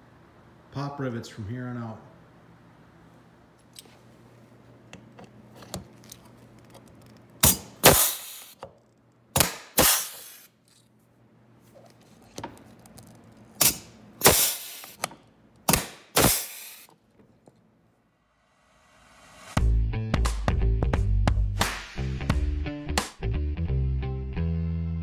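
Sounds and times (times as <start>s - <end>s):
pneumatic rivet gun bursts and hiss: 7.4s - 8.6s, 9.4s - 10.5s, 13.6s - 15.1s, 15.7s - 16.9s.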